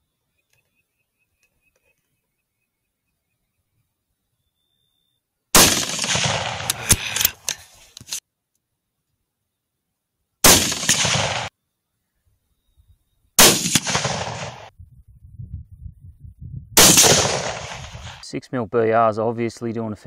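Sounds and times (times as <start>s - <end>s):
rifle shots: 5.6s - 7.2s, 10.4s - 11.5s, 13.4s - 14.7s, 16.8s - 18.2s.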